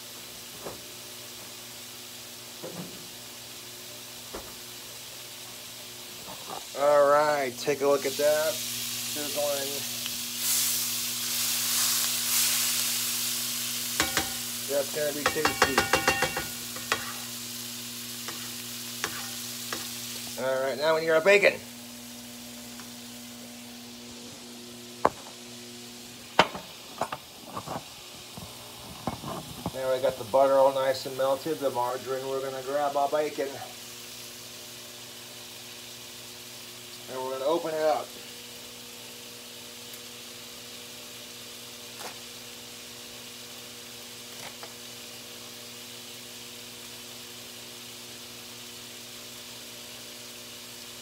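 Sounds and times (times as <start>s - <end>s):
butter sizzling in frying pan: 0.0s - 51.0s
low electrical hum: 0.0s - 51.0s
phone knocking on stovetop: 15.3s - 16.6s.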